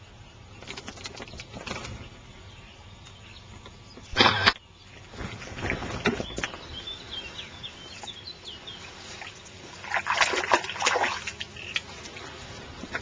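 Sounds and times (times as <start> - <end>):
bird chirping: 0.0 - 9.6, 11.5 - 11.9
rustling in grass: 5.0 - 13.0
water splashing: 9.0 - 13.0.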